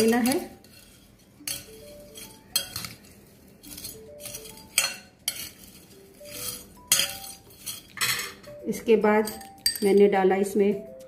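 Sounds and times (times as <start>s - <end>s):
spoon scraping glass bowl: 0.0s - 8.4s.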